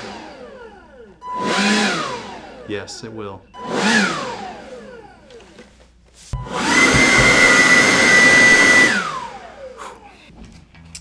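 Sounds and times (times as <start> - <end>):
leaf blower whining: 0.0 - 2.7, 3.6 - 5.6, 6.4 - 10.1.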